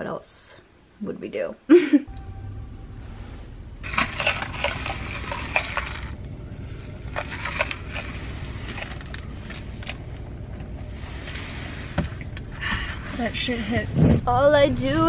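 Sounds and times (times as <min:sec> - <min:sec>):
car cabin rumble: 0:02.1 - 0:15.0
crackling handling noise: 0:03.1 - 0:12.5.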